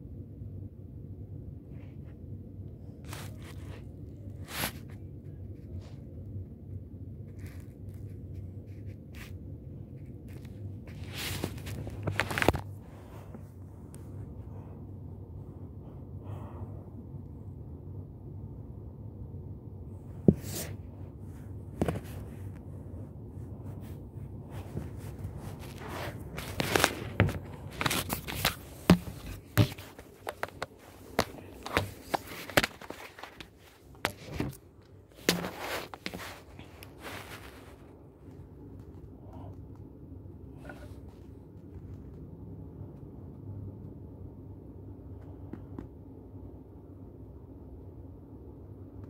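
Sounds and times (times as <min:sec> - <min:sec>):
low steady hum: 0:00.0 - 0:49.0
soft rustles and scrapes: 0:01.7 - 0:16.8, 0:19.8 - 0:39.7, 0:40.5 - 0:42.3
phone being handled: 0:10.2 - 0:13.4, 0:21.7 - 0:22.6, 0:24.6 - 0:37.8
scuffs: 0:10.2 - 0:14.4, 0:23.5 - 0:38.0.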